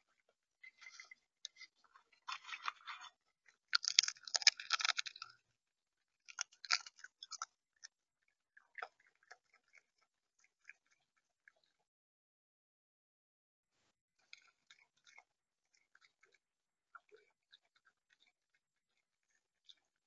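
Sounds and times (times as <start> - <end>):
seed pecking and crunching: 0.7 - 5.4, 6.2 - 7.9.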